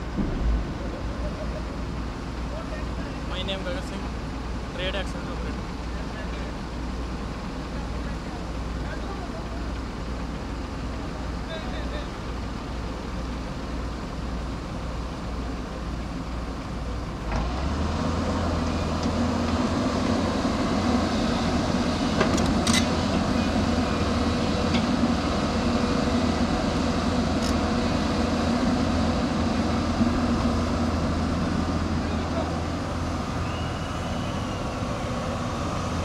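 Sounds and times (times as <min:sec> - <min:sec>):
excavator diesel engine running: 0:00.0 - 0:36.0.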